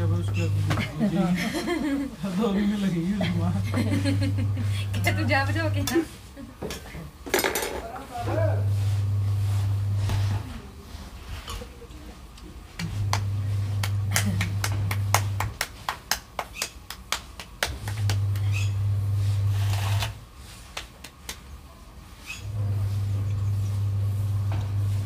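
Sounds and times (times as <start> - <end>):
loud low hum: 12.8 - 15.5
hands slapping dough: 12.8 - 18.6, 20.5 - 21.6.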